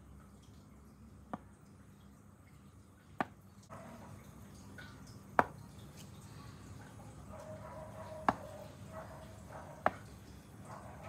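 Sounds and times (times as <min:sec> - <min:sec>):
blade knocking on cutting board: 0:08.2 - 0:08.5.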